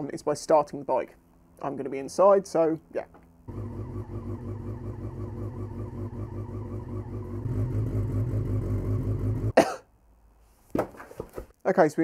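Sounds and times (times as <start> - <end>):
motorcycle engine idling: 3.5 - 9.5.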